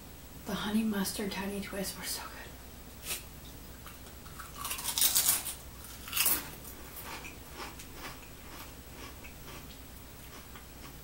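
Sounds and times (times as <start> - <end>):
quiet chewing: 3.8 - 11.0
potato chip crunching: 4.0 - 11.0.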